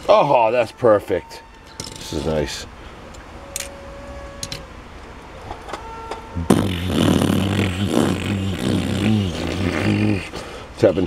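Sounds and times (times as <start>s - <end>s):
man imitating sputtering car engine: 6.4s - 11.0s.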